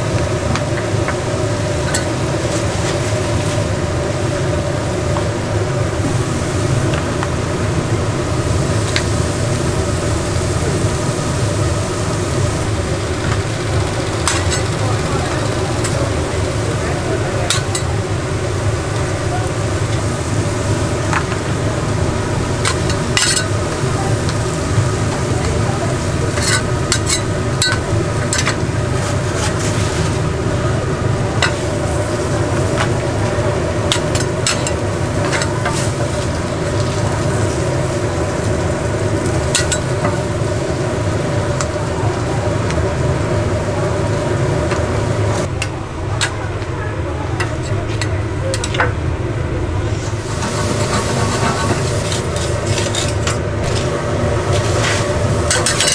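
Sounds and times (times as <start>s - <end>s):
food sizzling in a hot pan: 0.0s - 48.9s, 49.8s - 55.9s
steady low hum: 0.0s - 55.9s
utensils scraping a pan: 14.2s - 14.8s, 22.6s - 23.6s, 26.3s - 30.2s, 33.9s - 36.3s, 50.0s - 53.9s, 54.5s - 55.9s.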